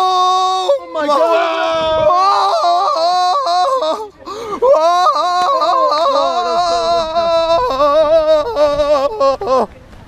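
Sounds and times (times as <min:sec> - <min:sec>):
person singing wordlessly: 0:04.8 - 0:09.7.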